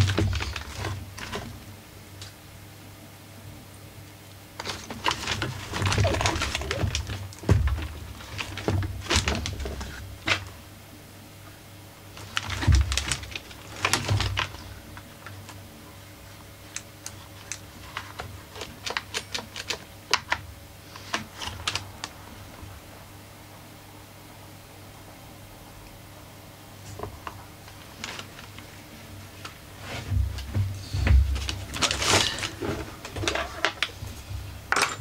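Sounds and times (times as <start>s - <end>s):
plastic parts clicking and knocking: 0.0s - 1.6s, 4.6s - 10.5s, 12.2s - 15.6s, 16.7s - 22.1s
loud plastic clatter: 0.0s - 1.7s, 4.6s - 10.6s, 12.1s - 15.6s, 17.0s - 22.6s, 29.4s - 35.0s.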